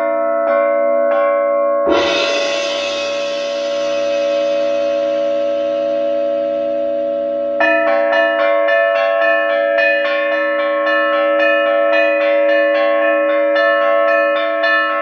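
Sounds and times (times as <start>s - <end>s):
cymbal or gong crash: 1.9s - 7.6s.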